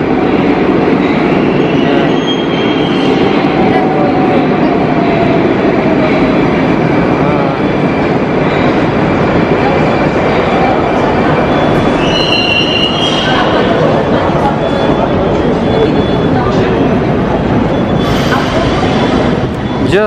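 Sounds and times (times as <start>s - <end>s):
metro train wheels rumbling: 0.0s - 20.0s.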